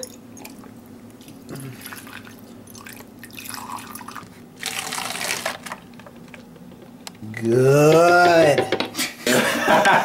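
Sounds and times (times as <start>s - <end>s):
liquid pouring into plastic bottle: 1.8s - 6.0s.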